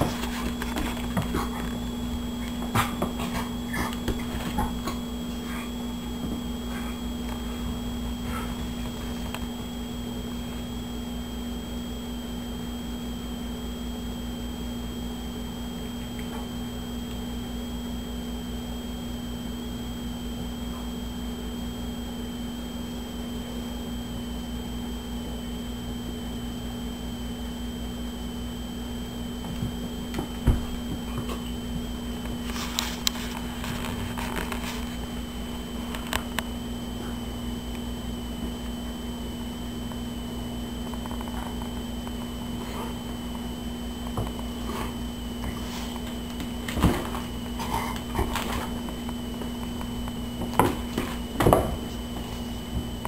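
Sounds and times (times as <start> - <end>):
animals scuffling on wooden floor: 0.0 - 9.7, 29.5 - 35.2, 44.1 - 52.9
background hum: 0.0 - 53.0.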